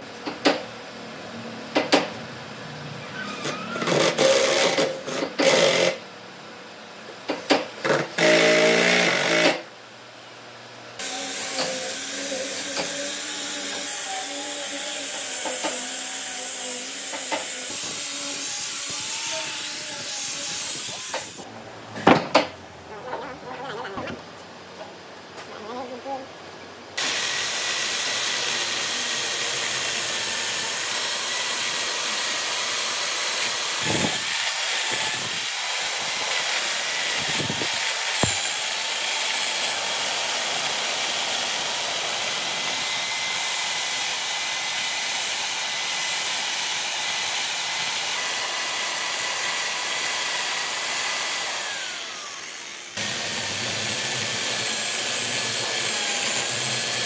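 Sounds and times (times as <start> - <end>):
chainsaw cutting wood: 3.5 - 6.0, 7.8 - 9.7, 11.0 - 21.5, 27.0 - 57.0.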